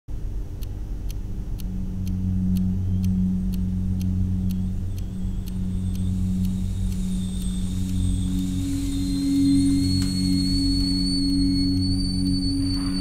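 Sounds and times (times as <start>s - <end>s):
light regular tick: 0.1s - 13.0s
low hum: 0.1s - 13.0s.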